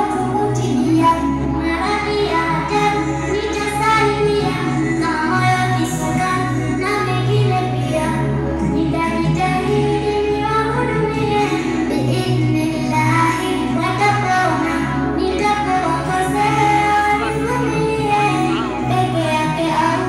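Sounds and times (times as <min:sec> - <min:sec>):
girl singing into microphone: 0:00.0 - 0:20.0
sustained low accompaniment notes: 0:00.0 - 0:20.0.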